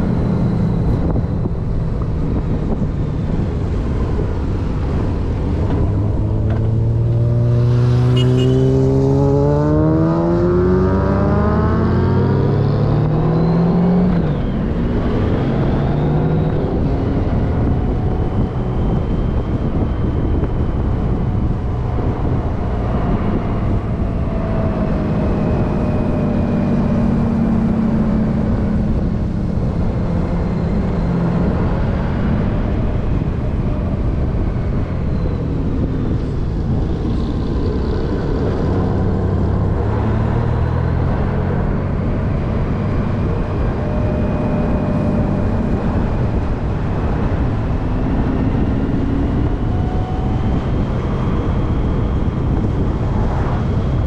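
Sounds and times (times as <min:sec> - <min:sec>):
vehicle engine accelerating: 0:00.0 - 0:54.0
steady rushing noise: 0:17.2 - 0:54.0.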